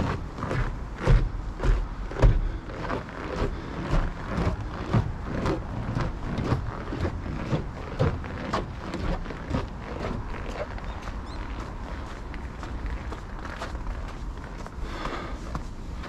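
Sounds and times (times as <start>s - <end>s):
footsteps crunching on snow: 0.0s - 16.0s.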